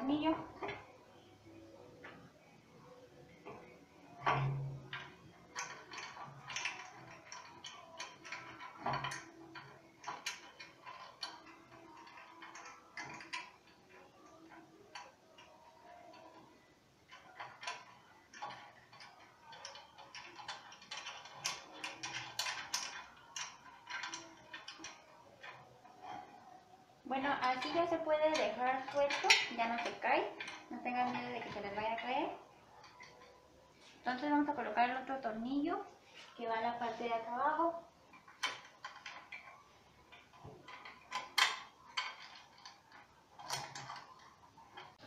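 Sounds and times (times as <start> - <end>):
metallic clicks and taps of bolt: 4.2 - 15.5, 38.1 - 45.0.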